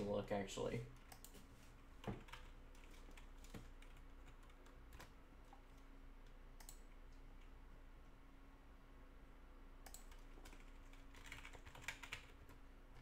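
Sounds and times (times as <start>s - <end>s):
faint low hum: 0.0s - 13.0s
computer keyboard clicks: 6.6s - 6.8s, 9.8s - 12.6s.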